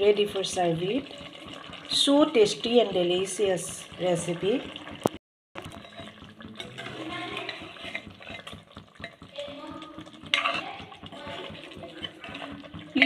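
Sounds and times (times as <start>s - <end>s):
curry sizzling: 0.0s - 13.0s
metal ladle scraping a pot: 5.7s - 9.3s, 10.0s - 12.9s.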